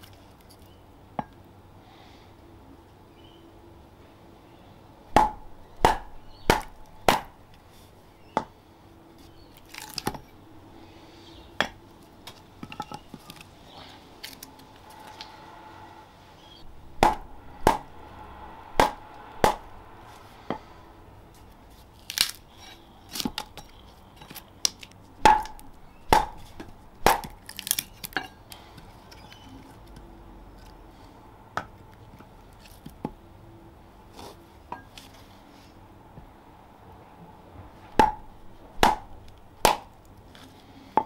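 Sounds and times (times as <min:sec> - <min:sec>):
wooden club striking steel froe: 0:05.1 - 0:07.5, 0:16.6 - 0:20.7, 0:25.2 - 0:27.4, 0:38.0 - 0:39.9
wood crackling as it splits: 0:09.2 - 0:10.4, 0:12.0 - 0:15.3, 0:21.3 - 0:30.0.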